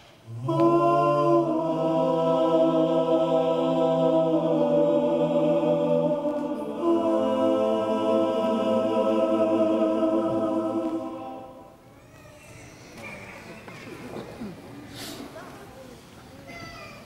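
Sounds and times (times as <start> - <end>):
vocal group singing in harmony: 0.0 - 11.9.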